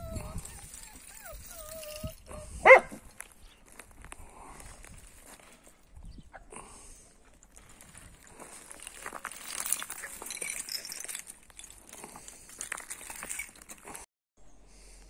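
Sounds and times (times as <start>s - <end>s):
puppies scuffling in debris: 7.2s - 14.1s.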